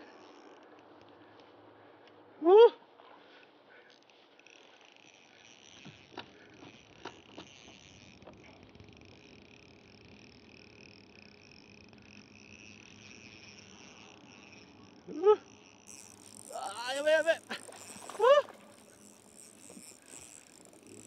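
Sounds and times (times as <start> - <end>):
insects chirring: 0.0 - 1.5, 3.3 - 21.0
person exclaiming: 16.5 - 18.6.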